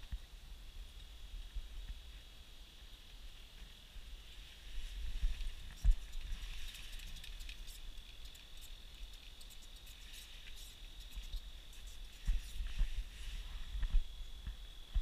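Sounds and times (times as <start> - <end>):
faint reel clicks: 5.2 - 12.8.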